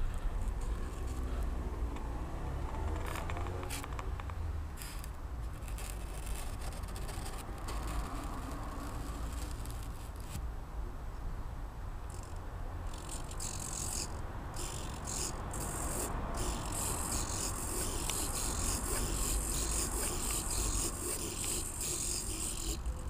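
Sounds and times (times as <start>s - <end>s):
servos buzzing and grinding: 4.8s - 10.4s, 12.1s - 23.0s.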